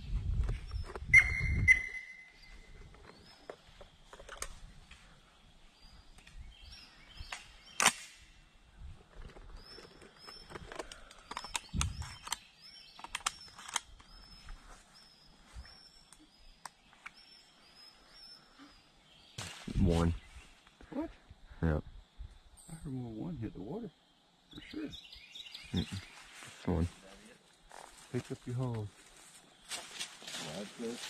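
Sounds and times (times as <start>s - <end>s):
bird calling: 0.6s - 7.9s, 24.4s - 27.4s
sharp crack: 7.3s - 8.3s
small clicks: 9.8s - 14.2s.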